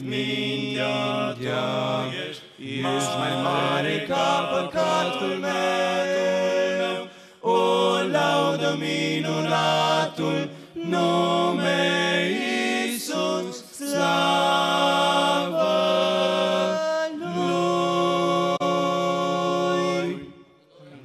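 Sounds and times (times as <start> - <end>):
male vocal quartet singing: 0.0 - 21.0.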